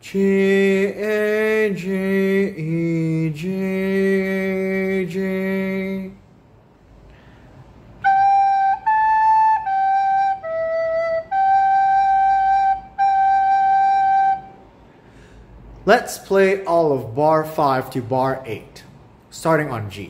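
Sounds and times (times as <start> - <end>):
recorder playing notes: 8.0 - 14.7.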